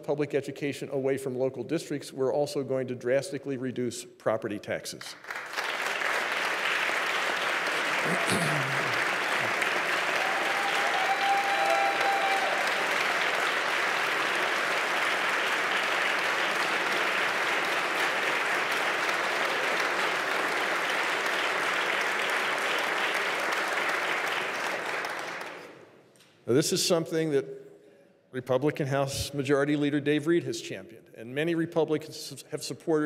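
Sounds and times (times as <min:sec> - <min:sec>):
audience applauding: 0:05.2 - 0:25.8.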